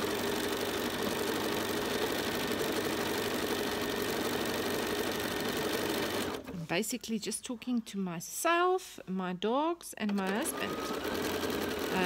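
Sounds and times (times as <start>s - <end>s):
sewing machine running: 0.0s - 6.6s, 10.1s - 12.0s.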